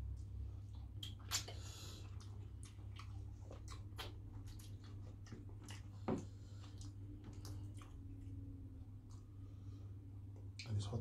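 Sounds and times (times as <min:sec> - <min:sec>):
low steady hum: 0:00.0 - 0:11.0
eating clicks and squishes: 0:00.6 - 0:09.4.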